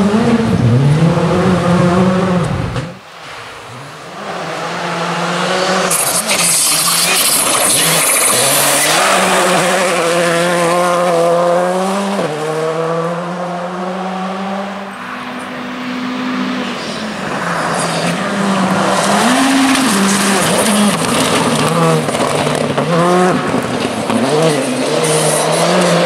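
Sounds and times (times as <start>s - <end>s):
rally car engine revving: 0.0s - 26.0s
gravel spraying: 5.5s - 10.7s.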